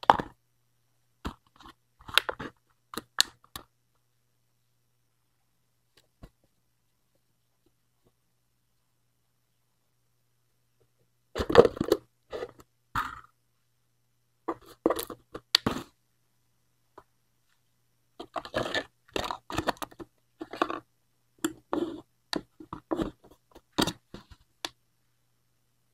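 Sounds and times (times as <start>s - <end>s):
plastic cup and lid crunching: 11.4s - 13.2s, 18.2s - 20.8s.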